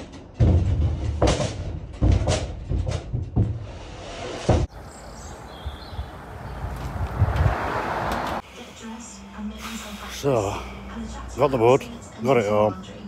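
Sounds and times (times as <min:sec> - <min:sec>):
heavy wooden knocks and scrapes: 0:00.0 - 0:04.7.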